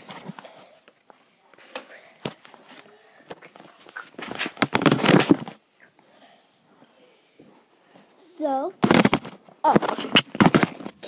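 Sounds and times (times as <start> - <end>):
rustling and knocking against clothing: 2.2 - 5.7, 8.8 - 11.0.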